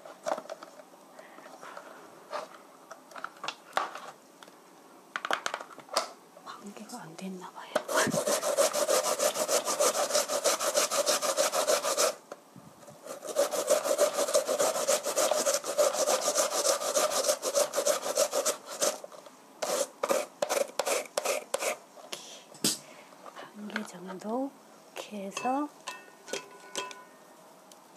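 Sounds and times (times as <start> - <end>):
carrot grating on a grater: 7.9 - 12.2, 13.0 - 19.0, 19.6 - 21.8.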